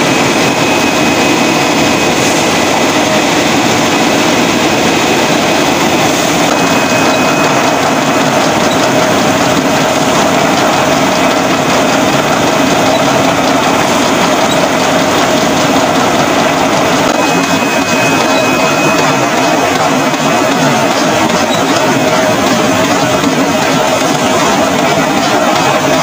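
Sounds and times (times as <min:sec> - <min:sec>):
labelling machine clatter and hum: 0:00.0 - 0:26.0.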